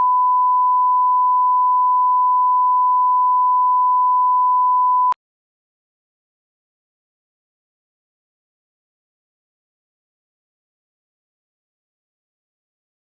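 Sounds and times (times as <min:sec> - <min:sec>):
sine test tone: 0:00.0 - 0:05.2.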